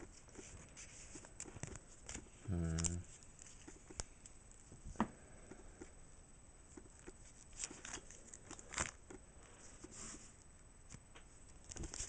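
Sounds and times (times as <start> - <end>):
cards rustling: 0.0 - 4.4, 6.9 - 10.3, 10.9 - 12.0.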